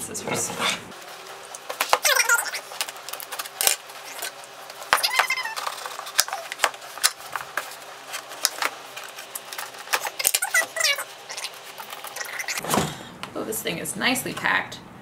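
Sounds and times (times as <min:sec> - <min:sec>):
cardboard rustling: 0:00.9 - 0:12.7
tape tearing and peeling: 0:01.5 - 0:12.6.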